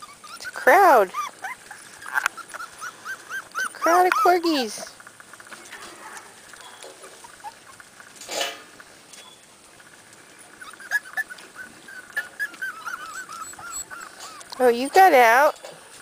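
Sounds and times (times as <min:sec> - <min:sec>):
puppies whimpering: 0:00.0 - 0:08.2, 0:10.4 - 0:16.0.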